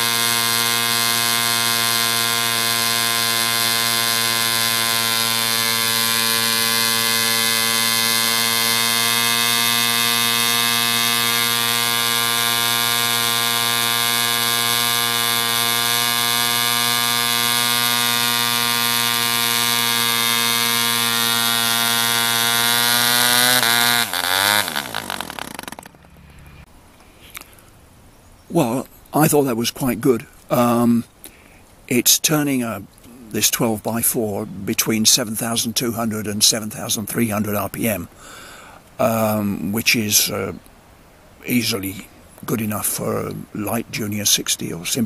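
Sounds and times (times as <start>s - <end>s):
model engine running flat out: 0.0s - 26.7s.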